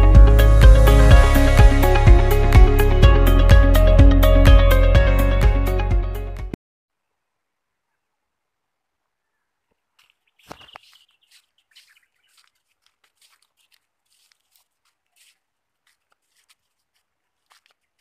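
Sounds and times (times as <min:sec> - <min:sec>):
footsteps crunching on dirt path: 0:09.7 - 0:18.0.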